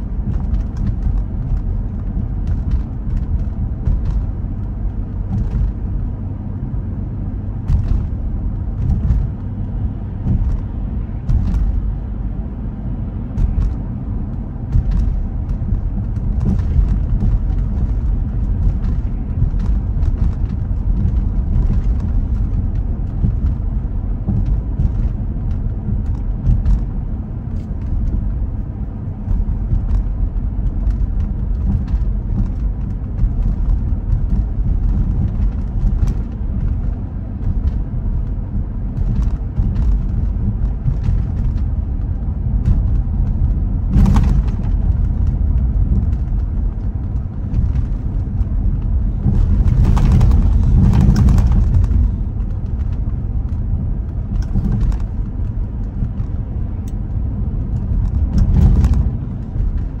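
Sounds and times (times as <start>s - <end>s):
road rumble: 0.0s - 60.0s
tyres swishing on wet road: 0.0s - 60.0s.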